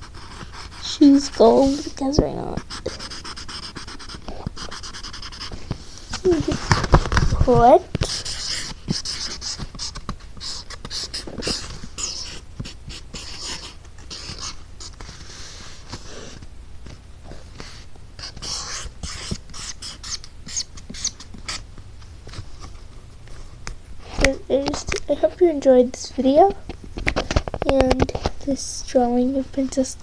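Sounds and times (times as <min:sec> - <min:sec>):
pen scratching on paper: 0:00.0 - 0:05.6, 0:06.2 - 0:15.3, 0:18.2 - 0:21.6.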